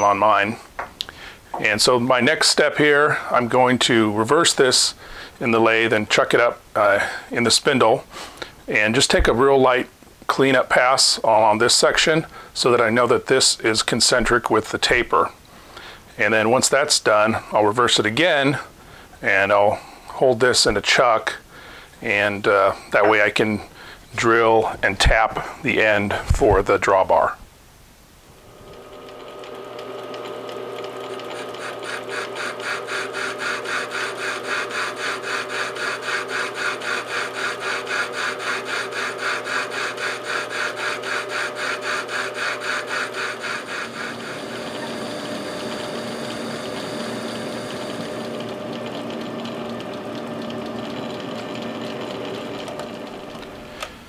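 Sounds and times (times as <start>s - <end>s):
metal lathe running: 28.4s - 53.9s.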